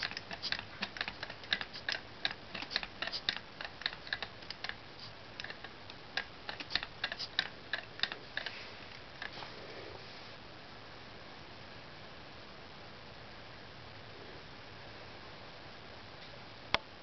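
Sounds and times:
toy pneumatic engine clicking: 0.0 - 8.6.

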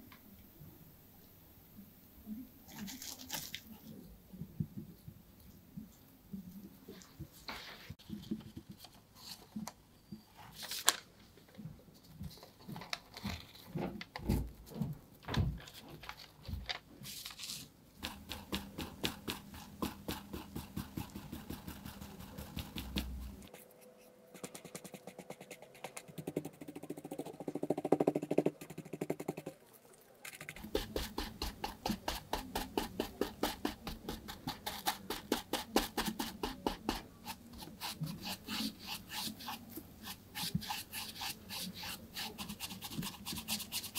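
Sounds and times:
brush dabbing and scrubbing: 18.0 - 43.9.

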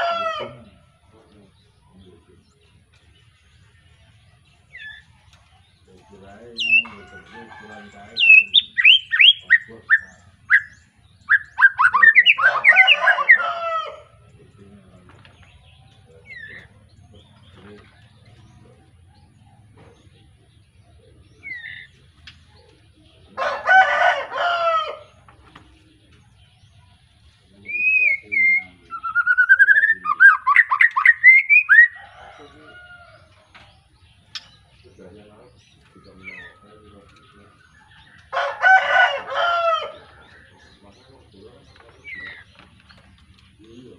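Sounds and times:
bird singing whistled notes: 8.1 - 12.9, 27.6 - 32.4, 33.8 - 38.2.

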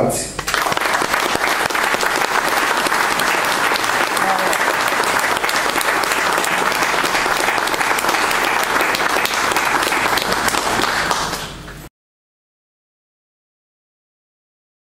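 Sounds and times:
audience applauding: 0.4 - 11.9.

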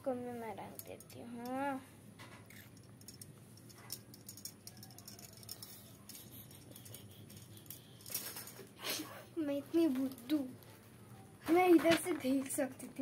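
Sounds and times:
low steady hum: 0.0 - 13.0
hair bands clicking and rustling: 0.6 - 8.8.

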